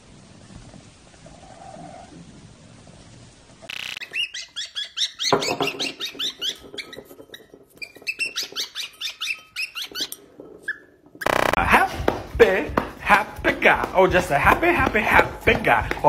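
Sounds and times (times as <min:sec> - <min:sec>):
cockatiel chirping: 0:03.7 - 0:06.6.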